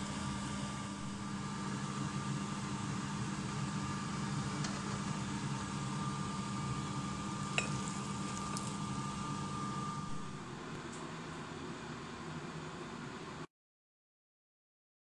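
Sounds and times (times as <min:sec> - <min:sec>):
machine hum with high whine: 0:00.0 - 0:13.5
pot clinking against ceramic bowl: 0:07.5 - 0:08.8.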